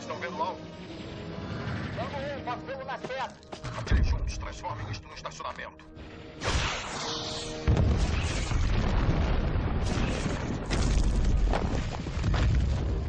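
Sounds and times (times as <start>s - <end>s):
dramatic film score music: 0.0s - 13.0s
missile explosions: 7.6s - 13.0s.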